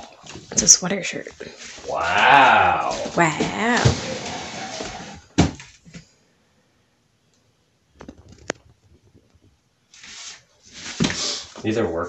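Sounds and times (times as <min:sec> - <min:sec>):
soft rustle: 0:08.1 - 0:11.6.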